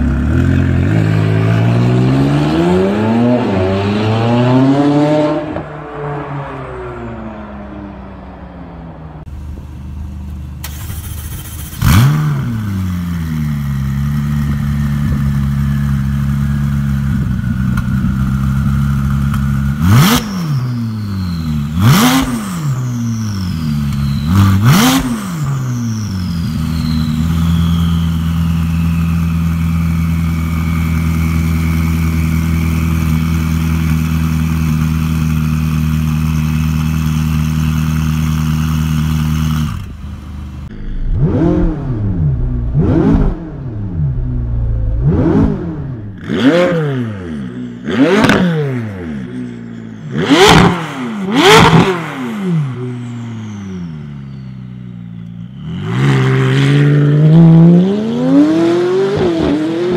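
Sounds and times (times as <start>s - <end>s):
car engine revving: 0.0s - 10.0s, 10.6s - 54.0s, 55.5s - 59.9s
car engine idling: 8.2s - 19.8s, 25.8s - 46.3s.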